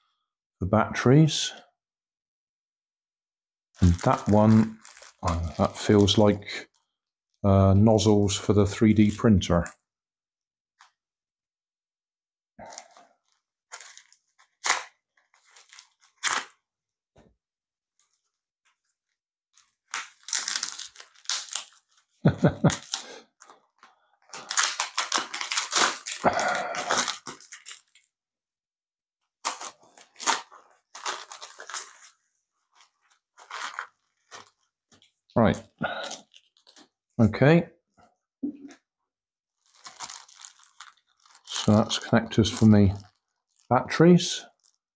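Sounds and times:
envelope crinkling: 3.8s - 6.4s, 12.6s - 16.6s, 18.0s - 28.1s, 29.4s - 35.2s, 36.0s - 37.0s, 39.6s - 43.7s, 44.5s - 44.9s.

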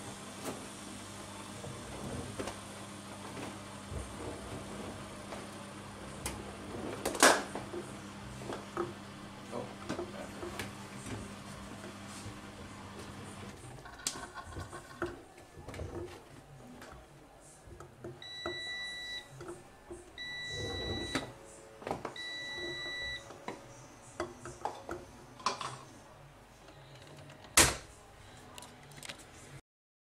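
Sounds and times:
washing machine beeping: 18.2s - 23.5s.

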